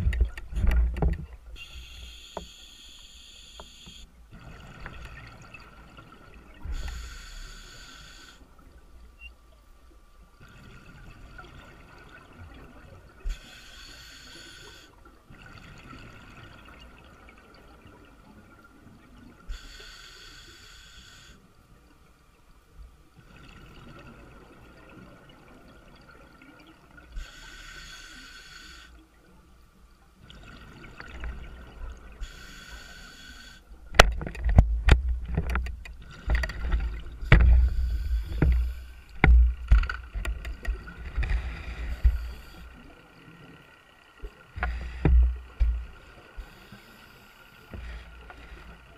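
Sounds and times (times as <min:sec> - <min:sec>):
diver breathing through regulator: 0:06.6 - 0:08.5, 0:13.3 - 0:15.0, 0:19.5 - 0:21.4, 0:27.2 - 0:29.0, 0:32.2 - 0:33.7, 0:36.1 - 0:39.3, 0:40.9 - 0:42.8, 0:44.6 - 0:48.9.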